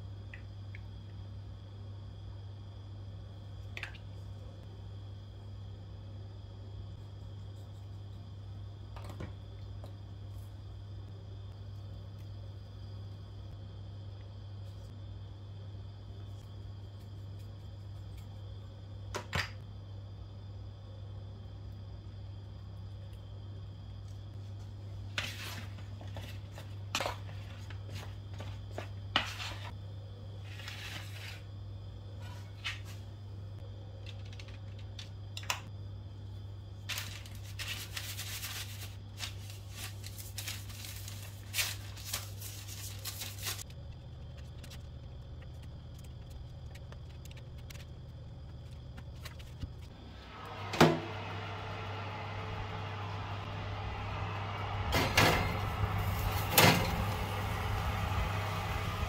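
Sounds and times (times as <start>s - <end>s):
steady low hum: 31.4s - 59.0s
parchment paper rustling: 36.8s - 49.9s
oven door clunk: 54.7s - 57.6s.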